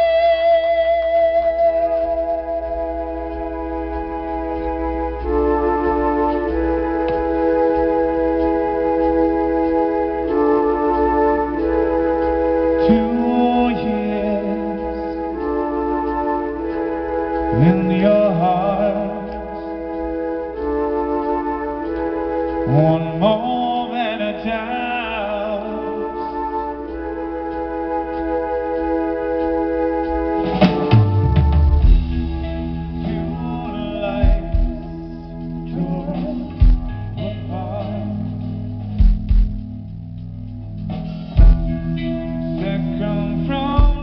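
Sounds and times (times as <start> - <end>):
organ chords: 0.0 - 44.0
sliding notes: 0.0 - 44.0
drums and full band crashing in: 30.4 - 33.3, 38.9 - 39.8, 40.9 - 42.0.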